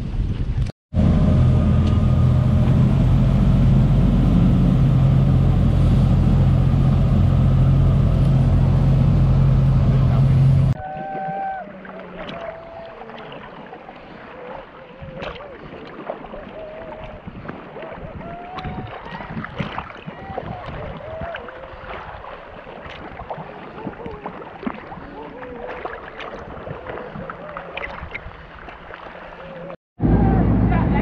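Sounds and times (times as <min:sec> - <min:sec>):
water sloshing and splashing: 0:01.7 - 0:29.8
people making hummed vocal calls: 0:09.9 - 0:19.4, 0:23.4 - 0:28.1.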